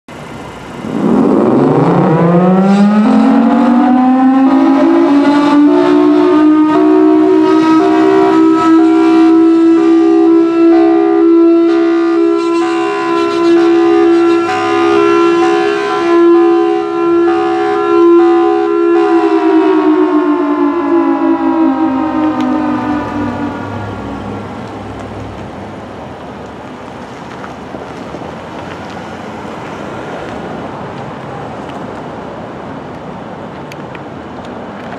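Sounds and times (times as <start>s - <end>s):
siren winding down: 0.6s - 25.3s
two-pitch fire siren: 0.8s - 25.4s.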